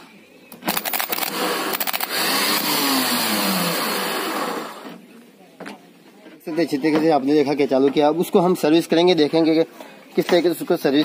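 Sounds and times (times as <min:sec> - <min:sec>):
starter motor whirring: 0:00.7 - 0:05.0.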